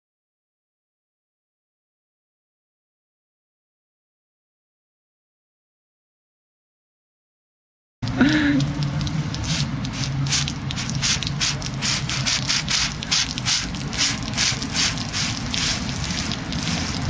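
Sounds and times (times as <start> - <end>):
carbonation hissing from bottle: 8.2 - 17.0.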